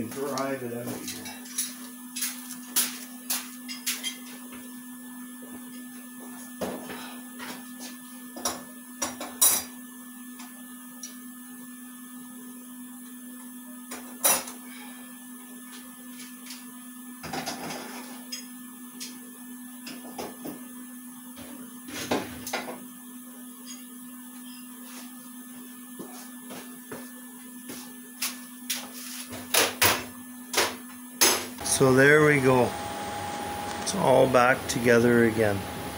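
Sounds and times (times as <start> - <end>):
steady electrical hum: 13.9 - 35.9.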